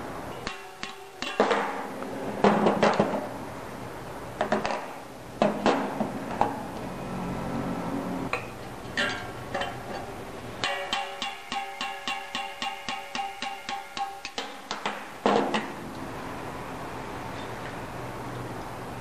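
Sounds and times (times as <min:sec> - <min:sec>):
hammer striking metal: 0:00.3 - 0:01.9, 0:10.6 - 0:15.7
steady metal taps: 0:10.6 - 0:16.0.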